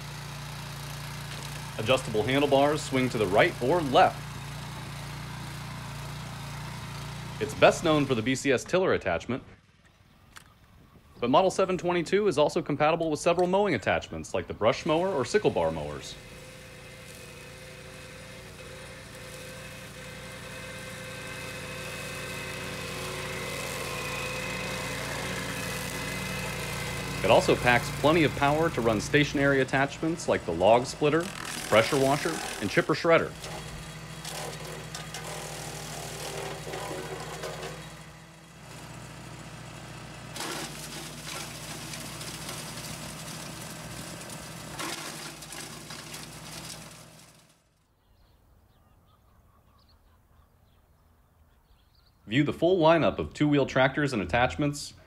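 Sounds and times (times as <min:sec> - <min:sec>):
tractor engine mowing grass: 0:00.0 - 0:47.8
branches crackling in chipper: 0:14.8 - 0:47.9.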